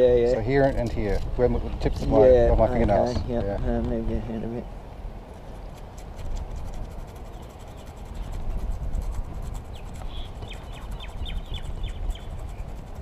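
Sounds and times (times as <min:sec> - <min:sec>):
scuffer rubbing rubber tube: 0:05.7 - 0:13.0.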